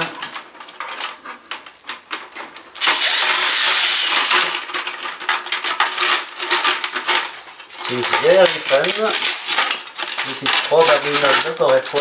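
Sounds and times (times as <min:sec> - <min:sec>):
plastic parts clicking and knocking: 0:00.0 - 0:12.0
loud rasping noise: 0:02.8 - 0:04.5.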